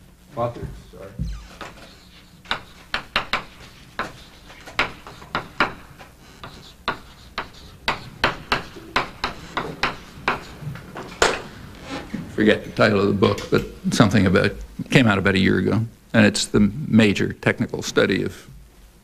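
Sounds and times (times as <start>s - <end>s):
chalk writing on blackboard: 1.3s - 10.7s.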